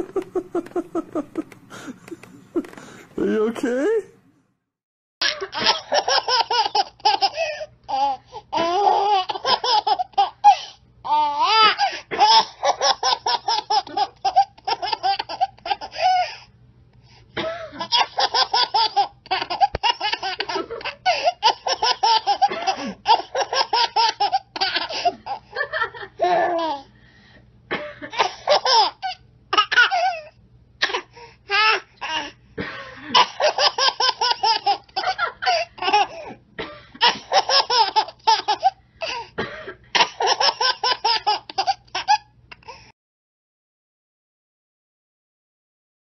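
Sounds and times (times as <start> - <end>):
baby laughing: 0.0 - 3.0, 5.2 - 16.4, 17.8 - 25.5, 26.2 - 26.9, 28.1 - 32.4, 33.1 - 36.3, 37.0 - 39.2, 40.0 - 42.6.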